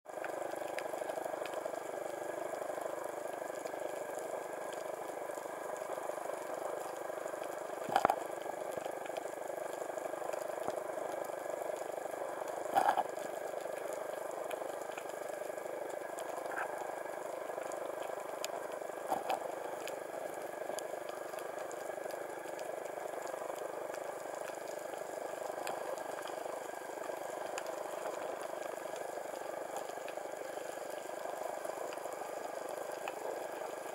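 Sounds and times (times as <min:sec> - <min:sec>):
faint clicks: 0:00.1 - 0:33.9
underwater hiss: 0:00.3 - 0:33.9.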